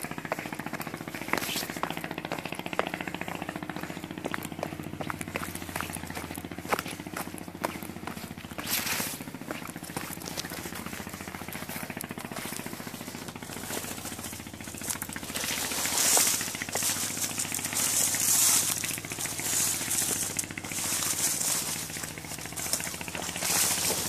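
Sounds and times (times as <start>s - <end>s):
steady low hum: 0.0s - 24.0s
branches and leaves swishing: 8.2s - 24.0s.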